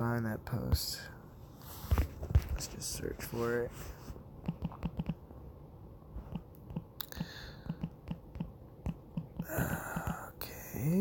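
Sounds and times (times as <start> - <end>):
fingertips tapping touchscreen: 4.4 - 5.2, 6.2 - 10.3.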